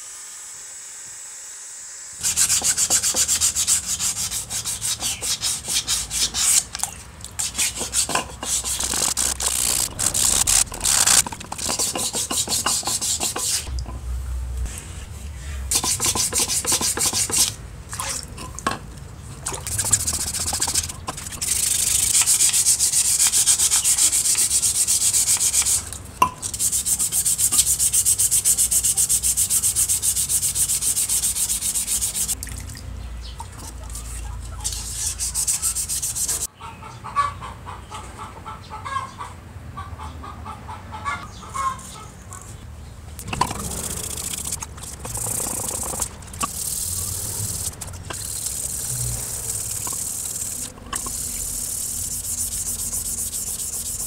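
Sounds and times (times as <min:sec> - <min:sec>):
rasping scrape on rusty metal: 0:02.2 - 0:06.7, 0:07.4 - 0:13.9, 0:14.6 - 0:17.5, 0:19.7 - 0:32.4, 0:33.9 - 0:36.5, 0:43.2 - 0:54.0.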